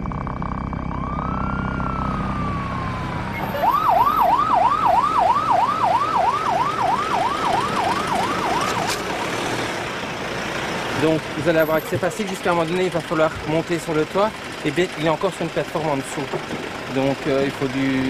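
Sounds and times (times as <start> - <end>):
ambulance siren: 0.0 - 14.0.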